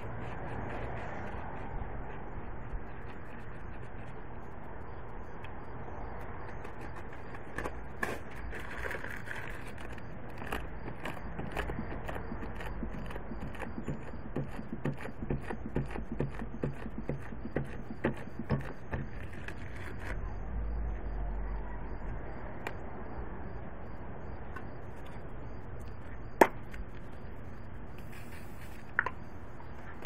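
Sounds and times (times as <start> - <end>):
steady low hiss: 23.2 - 30.0.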